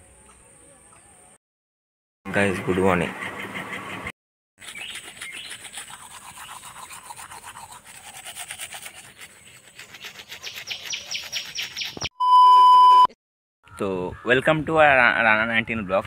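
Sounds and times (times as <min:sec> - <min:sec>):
toothbrush scrubbing teeth: 0:04.6 - 0:12.0.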